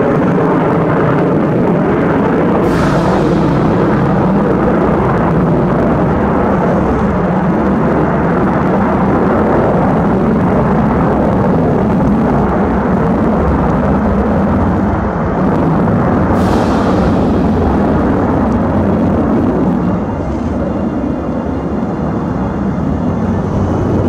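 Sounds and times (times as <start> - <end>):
jet airliner roaring: 0.0 - 24.0.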